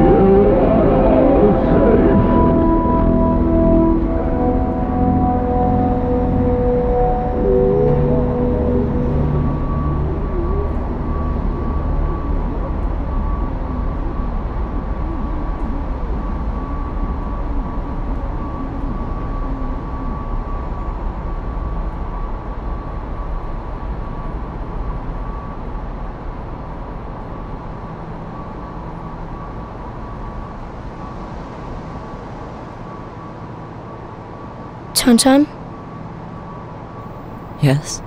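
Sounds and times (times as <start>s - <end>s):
faint wavering tone: 0.0s - 14.4s.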